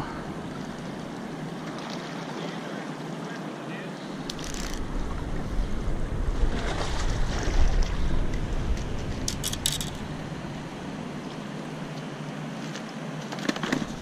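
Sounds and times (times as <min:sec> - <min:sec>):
wind buffeting microphone: 0:04.2 - 0:11.9.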